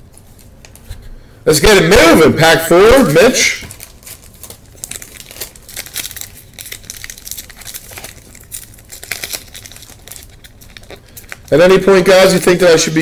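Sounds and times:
foil wrapper crinkling and tearing: 3.2s - 13.0s.

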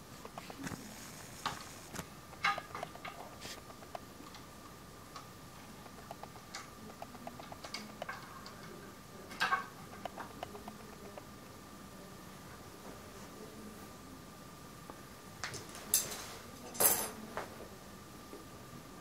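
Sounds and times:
faint clicks and ticks: 0.2s - 11.6s.

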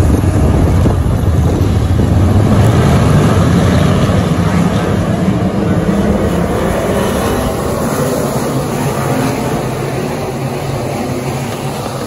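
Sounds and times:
race car engines droning: 0.0s - 12.0s.

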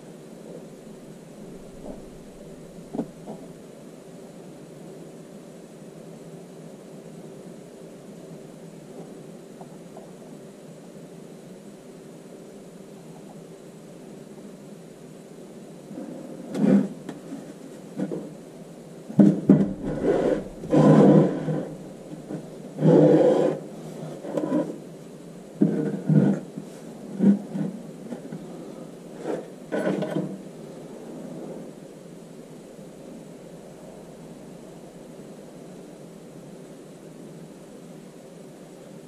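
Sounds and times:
steady background hum: 0.0s - 39.0s
wood knocking and scraping: 19.2s - 21.7s.

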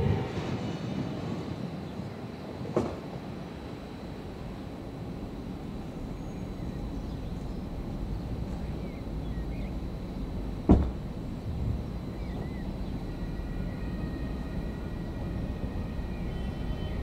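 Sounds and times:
low rumble of trains: 0.0s - 17.0s
loud thump: 10.7s - 11.0s.

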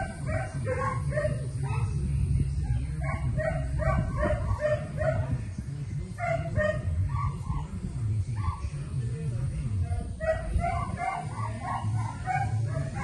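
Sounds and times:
dog barking: 0.0s - 2.0s, 3.0s - 5.4s, 6.2s - 7.7s, 10.0s - 13.0s
low rumble: 0.0s - 13.0s.

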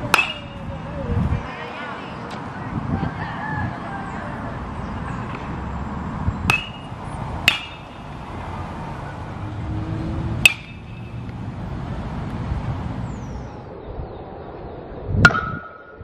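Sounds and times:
metal bat pinging baseballs: 0.0s - 0.9s, 6.4s - 8.3s, 10.3s - 11.4s, 15.2s - 16.0s.

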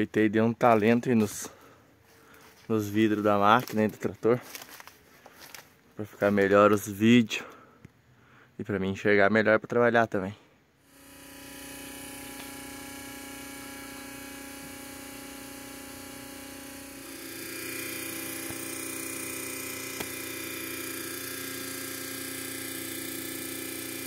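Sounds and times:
electric fuel pump running: 10.8s - 24.0s.

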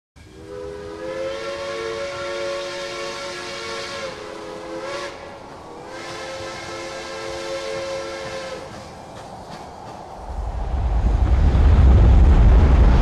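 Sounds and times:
steam locomotive whistle: 0.2s - 9.0s
steam hiss: 0.2s - 11.8s.

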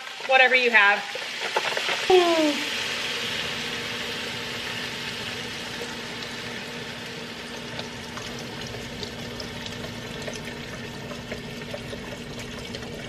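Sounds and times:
liquid pouring into a pot: 0.0s - 13.0s.

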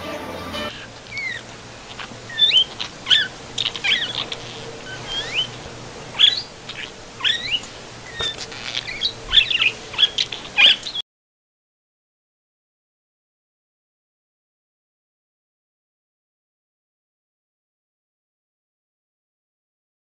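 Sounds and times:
budgerigar chattering: 1.1s - 11.0s.

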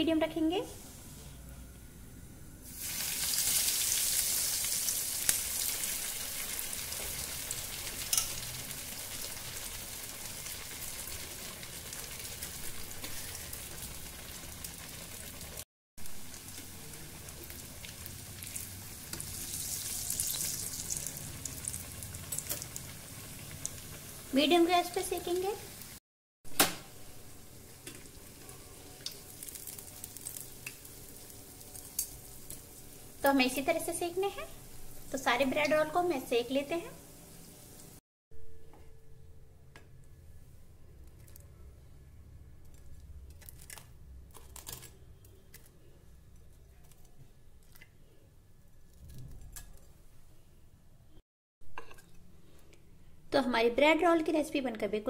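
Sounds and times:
oil sizzling: 2.6s - 38.0s.

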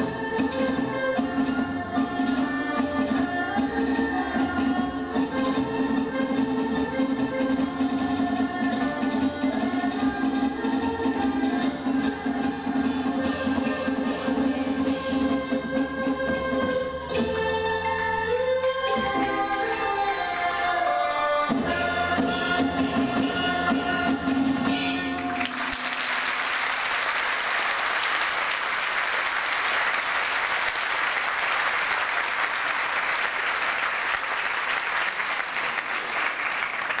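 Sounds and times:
traditional instrument ensemble: 0.0s - 37.0s
audience applauding: 25.2s - 37.0s.

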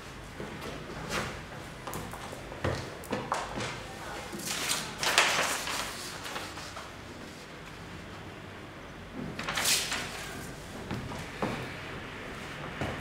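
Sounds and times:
paper rustling: 3.4s - 7.0s, 9.4s - 10.6s.

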